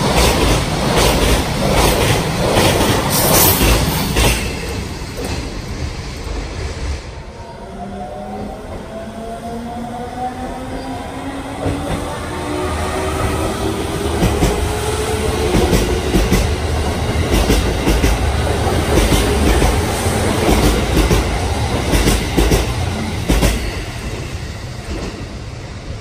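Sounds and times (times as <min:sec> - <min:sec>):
train wheels clacking: 0:00.0 - 0:05.9, 0:11.6 - 0:25.4
train rumble: 0:00.0 - 0:26.0.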